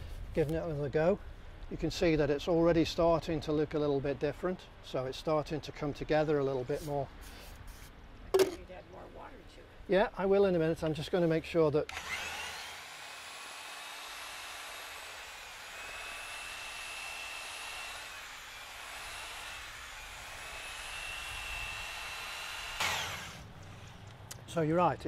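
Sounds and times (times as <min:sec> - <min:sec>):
electric paddle mixer whining: 0:11.9 - 0:23.8.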